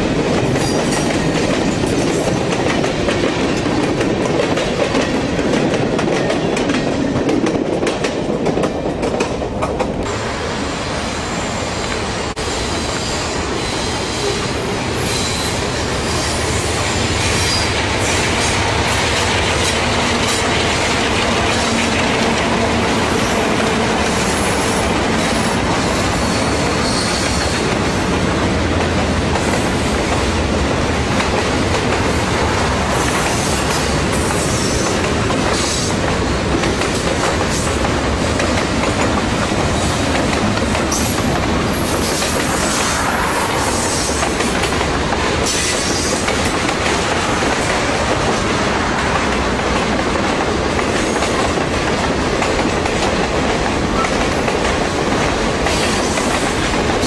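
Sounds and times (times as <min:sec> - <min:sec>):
train wheels squealing: 0:11.1 - 0:18.6, 0:24.0 - 0:27.7.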